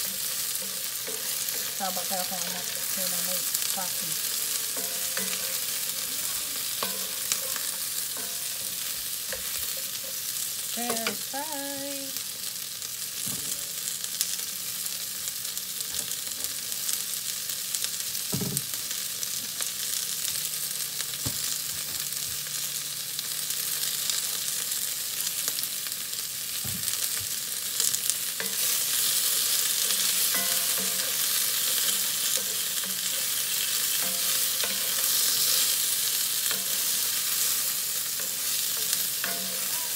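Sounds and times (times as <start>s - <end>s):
vegetables sizzling in oil: 0.0s - 39.9s.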